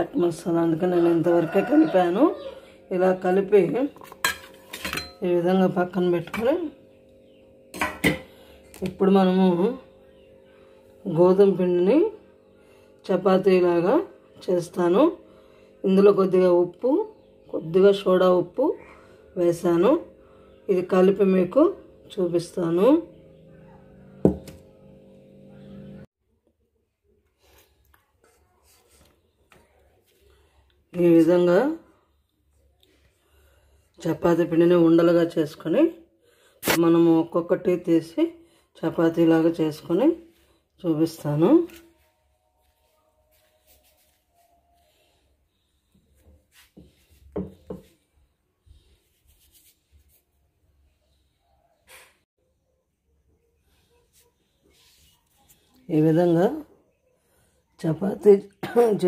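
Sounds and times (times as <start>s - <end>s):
steady low hum: 0.0s - 26.1s
hands rubbing dough: 41.5s - 45.2s, 46.0s - 48.1s, 48.8s - 50.5s, 54.0s - 55.8s.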